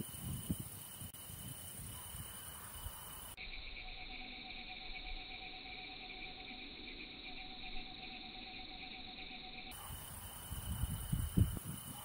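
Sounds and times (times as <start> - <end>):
crickets chirping: 0.0 - 12.0
lower-pitched insect chorus: 0.0 - 12.0.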